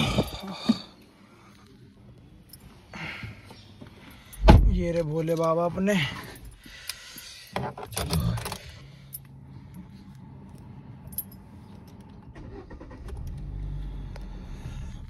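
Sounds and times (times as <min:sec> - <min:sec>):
low steady hum: 0:00.0 - 0:15.0
keys jangling and clicking: 0:07.8 - 0:12.4.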